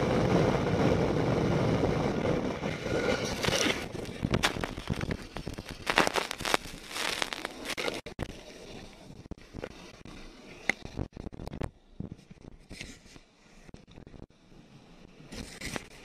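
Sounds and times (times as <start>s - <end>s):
phone microphone handling noise: 3.3s - 8.2s.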